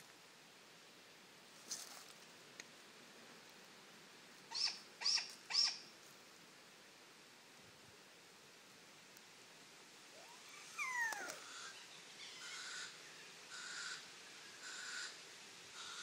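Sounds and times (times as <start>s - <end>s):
owl squeal: 4.5s - 5.8s, 10.1s - 12.9s
owl raspy hisses: 10.2s - 12.9s, 13.5s - 14.0s, 14.6s - 15.2s.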